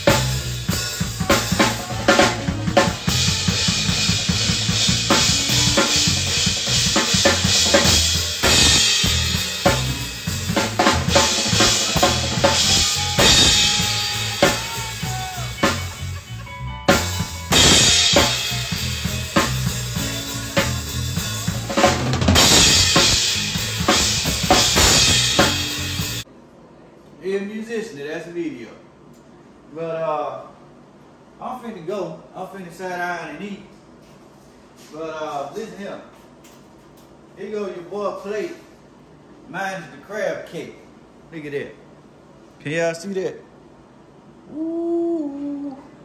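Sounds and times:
drum kit groove: 0:00.0 - 0:26.2
pitched instruments: 0:00.0 - 0:26.2.

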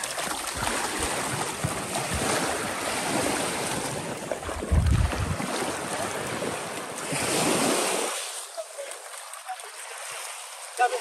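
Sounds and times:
water lapping around wading legs: 0:00.0 - 0:11.0
wind on microphone: 0:04.4 - 0:06.6.

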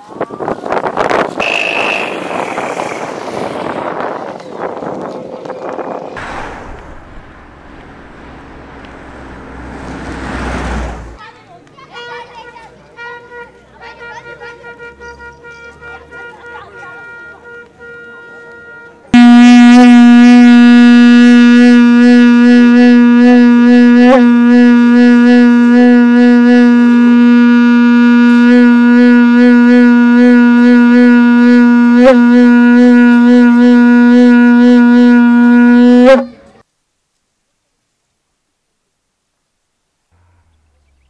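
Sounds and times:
horn blowing long note: 0:01.3 - 0:04.7, 0:06.2 - 0:11.2, 0:14.6 - 0:36.6.

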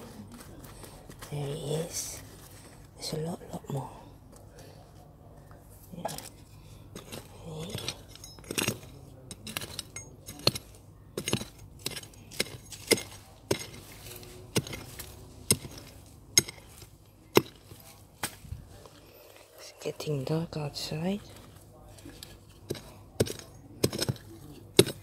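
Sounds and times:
blade clinking on stones: 0:07.0 - 0:17.8, 0:21.2 - 0:25.0
hand hoe chopping stony soil: 0:07.0 - 0:18.5, 0:21.2 - 0:25.0.

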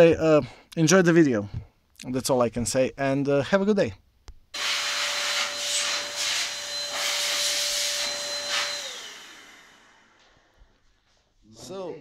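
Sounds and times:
electric dust blower: 0:04.6 - 0:10.8.

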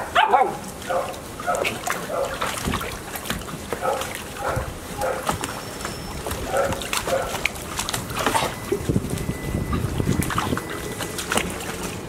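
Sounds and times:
puppies barking and yipping: 0:00.0 - 0:02.5, 0:03.8 - 0:08.6
water splashing in paddling pool: 0:00.0 - 0:12.0.

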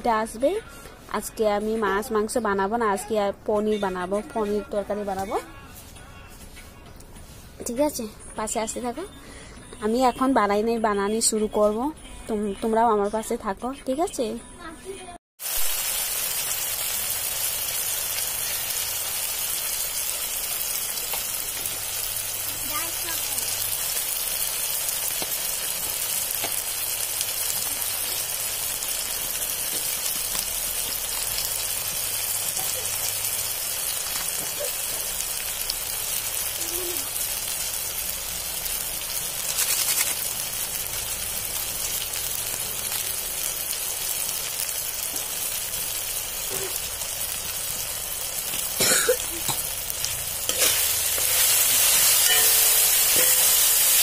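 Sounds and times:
onions sizzling in oil: 0:15.4 - 0:54.0.

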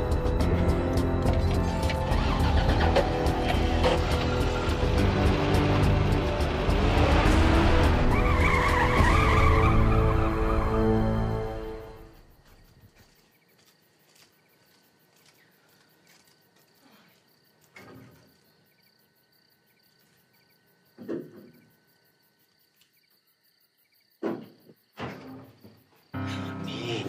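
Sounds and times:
crickets chirping: 0:00.0 - 0:27.0
soft thumps and knocks: 0:24.2 - 0:25.8.

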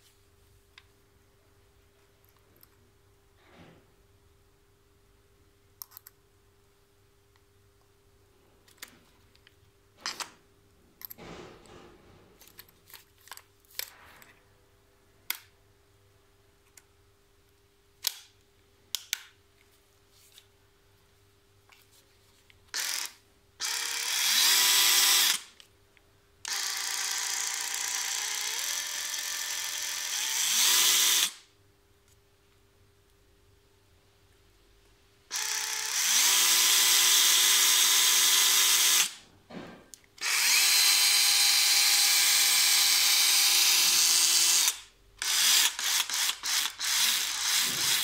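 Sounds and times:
electric saw running: 0:26.5 - 0:31.4, 0:40.2 - 0:48.0.

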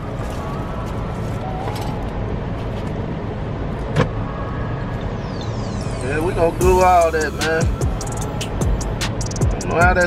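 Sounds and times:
car idling: 0:06.4 - 0:10.0.

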